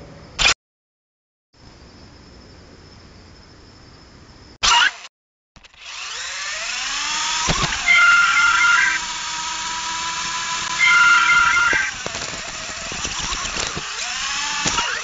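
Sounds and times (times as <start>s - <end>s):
electric motors whining: 4.6s - 15.0s.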